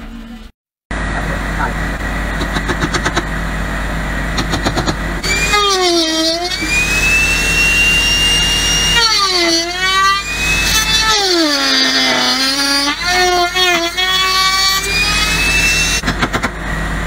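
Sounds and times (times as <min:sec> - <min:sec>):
router whining cutting wood: 0:04.5 - 0:16.0.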